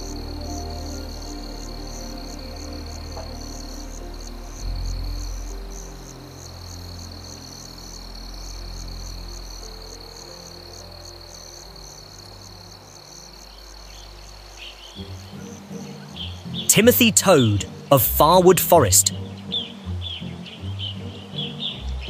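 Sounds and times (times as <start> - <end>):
insect trill: 0.0 - 16.6
pulsing insect chirp: 0.0 - 16.6
soft low music notes: 0.0 - 22.0.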